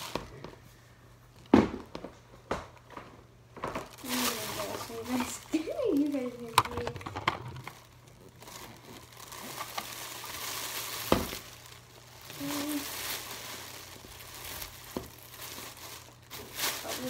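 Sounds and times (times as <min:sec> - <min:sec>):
plastic bag rustling and crinkling: 0:00.0 - 0:00.5, 0:03.6 - 0:17.0.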